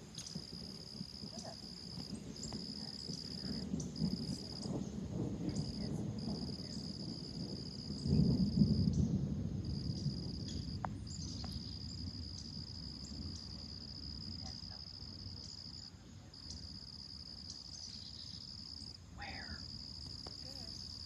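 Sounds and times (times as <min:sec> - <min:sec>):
insect droning: 0:00.0 - 0:21.0
thunder rumbling: 0:00.0 - 0:21.0.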